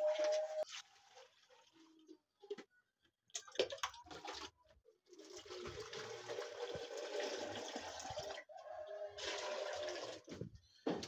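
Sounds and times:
water pouring into plastic jug: 0.2s - 2.2s, 3.3s - 8.5s, 9.2s - 10.3s.

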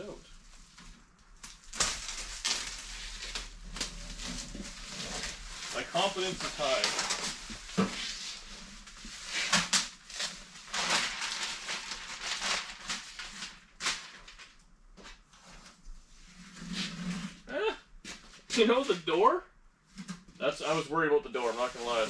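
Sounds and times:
tape and plastic sheeting peeling: 0.4s - 14.6s, 21.4s - 22.0s.

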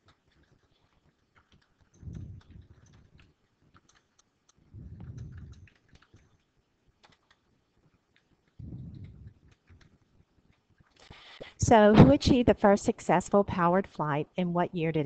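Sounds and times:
dull low rumble: 2.1s - 2.8s, 4.8s - 5.7s, 8.6s - 9.4s.

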